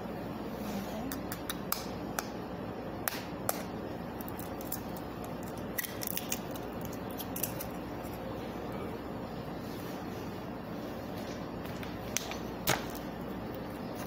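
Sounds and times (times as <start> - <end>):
eggshell cracking: 4.2 - 7.8.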